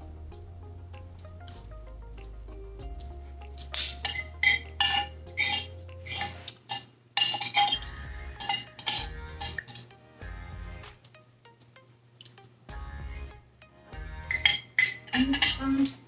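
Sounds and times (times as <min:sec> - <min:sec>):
cutlery clinking on plate: 0:03.6 - 0:07.8, 0:08.4 - 0:09.9, 0:14.3 - 0:16.0.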